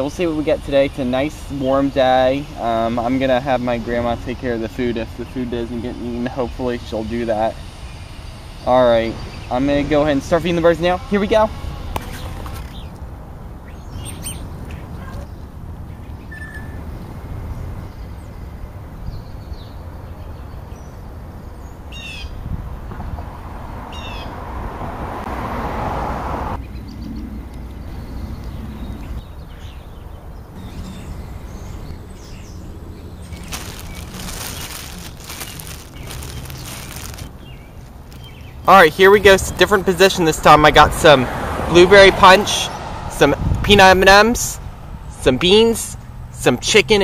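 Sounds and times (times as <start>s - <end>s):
bird chirps: 13.6s - 15.2s, 15.9s - 16.8s, 26.6s - 38.7s.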